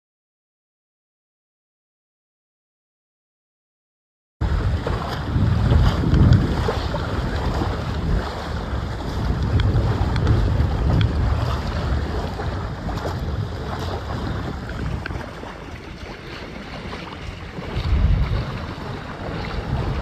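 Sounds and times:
water rushing past boat hulls: 0:04.4 - 0:20.0
wind buffeting microphone: 0:04.4 - 0:20.0.

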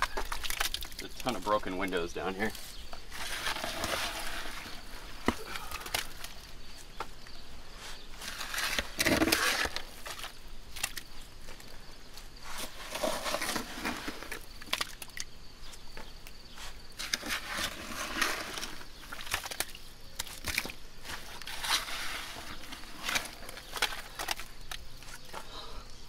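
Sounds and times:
shovel scraping wet mud: 0:03.1 - 0:06.3, 0:08.2 - 0:11.0, 0:12.5 - 0:15.0, 0:17.0 - 0:24.5.

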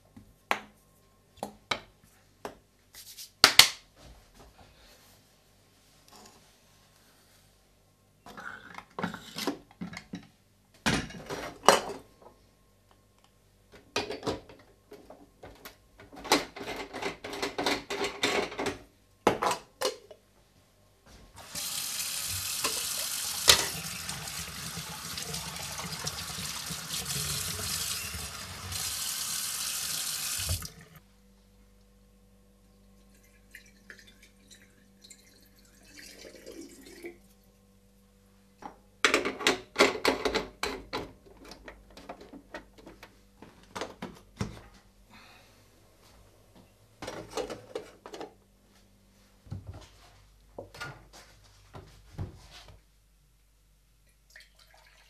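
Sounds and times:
kitchen tap running into sink: 0:21.4 - 0:31.0, 0:33.2 - 0:37.1
water poured from glass carafe: 0:33.1 - 0:37.2, 0:54.3 - 0:55.0.

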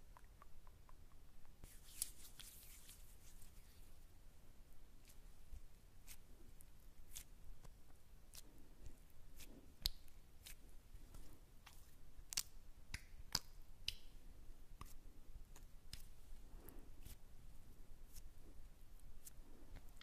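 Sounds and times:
mouth clicks and snaps: 0:00.0 - 0:02.6, 0:12.3 - 0:14.1
faint squishy sounds: 0:00.0 - 0:04.2, 0:04.9 - 0:20.0.

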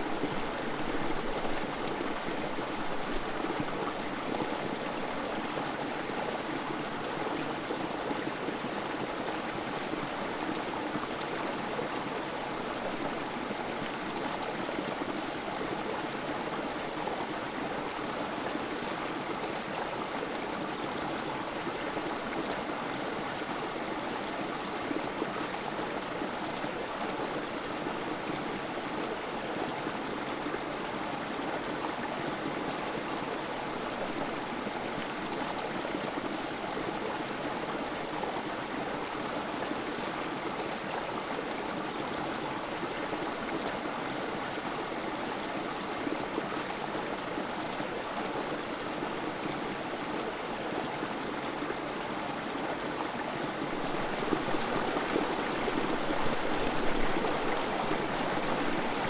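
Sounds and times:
creek water splashing over rocks: 0:47.7 - 0:59.0.

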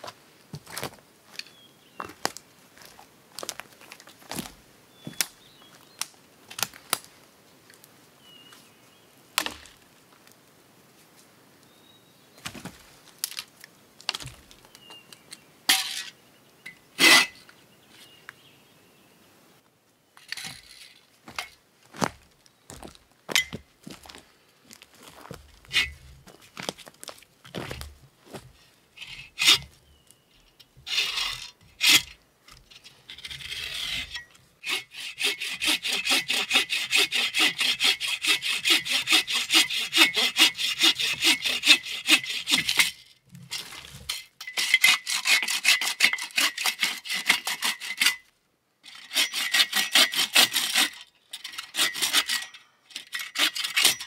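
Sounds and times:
dry sticks cracking and crunching: 0:12.5 - 0:15.2.

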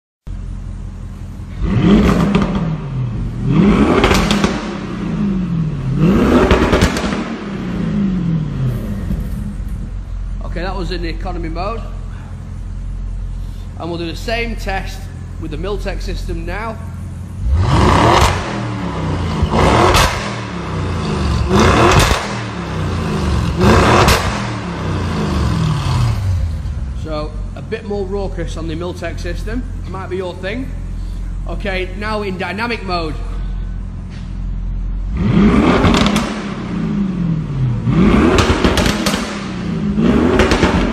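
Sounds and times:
engine rumbling idle: 0:00.3 - 0:35.3
car engine revving: 0:00.3 - 0:40.9
exhaust crackles and pops: 0:01.6 - 0:02.8, 0:03.7 - 0:05.1, 0:05.8 - 0:07.9, 0:17.5 - 0:26.2, 0:34.0 - 0:36.8, 0:37.8 - 0:40.9.

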